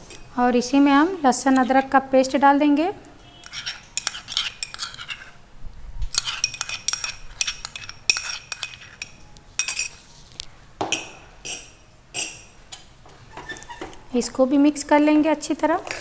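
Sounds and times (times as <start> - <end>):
spoon clinking and scraping bowl: 3.2 - 5.4, 6.0 - 10.1, 11.0 - 12.6.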